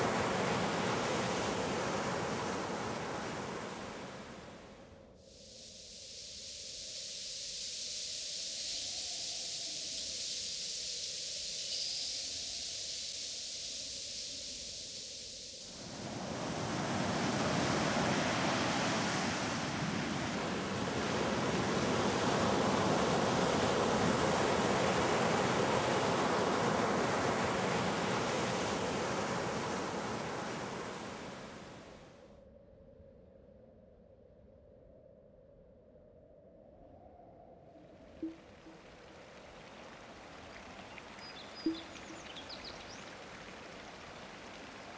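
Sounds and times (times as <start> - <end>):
ocean surf washing in: 0.0 - 4.7, 15.7 - 32.0.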